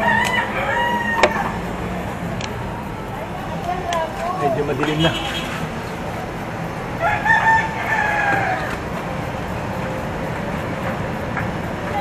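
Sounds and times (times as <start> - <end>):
rooster crowing: 0.0 - 1.8, 6.7 - 9.2.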